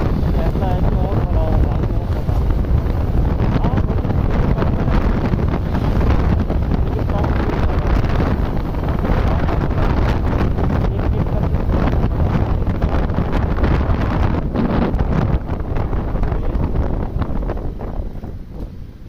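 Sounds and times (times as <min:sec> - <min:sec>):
road noise: 0:00.0 - 0:19.0
wind buffeting microphone: 0:00.0 - 0:19.0.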